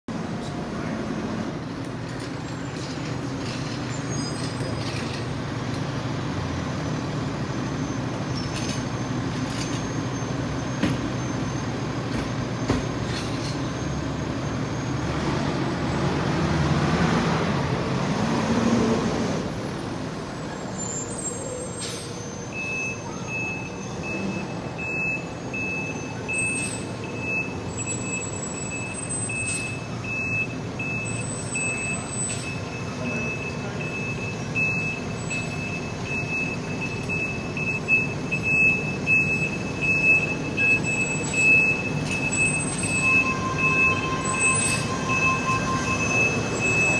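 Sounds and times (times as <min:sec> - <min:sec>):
fire engine diesel engine: 0:00.1 - 0:46.9
reversing beeper beeps: 0:22.4 - 0:46.9.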